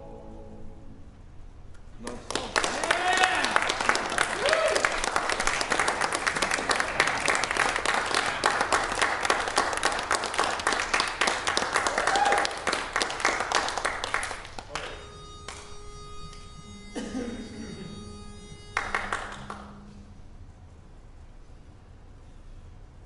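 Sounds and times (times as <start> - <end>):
audience applauding: 2.0 - 15.6, 18.8 - 19.7.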